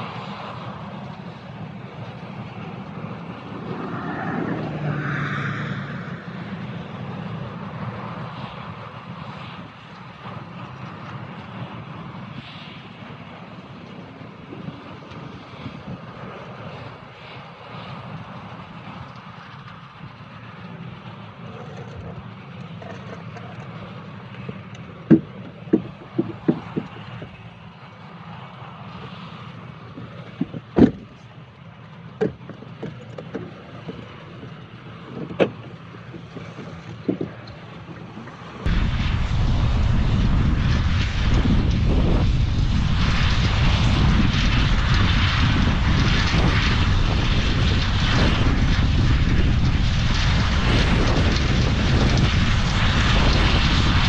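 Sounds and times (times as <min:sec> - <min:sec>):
combine harvester engine drone: 0:00.0 - 0:54.0
sharp clicks and knocks: 0:24.3 - 0:27.4.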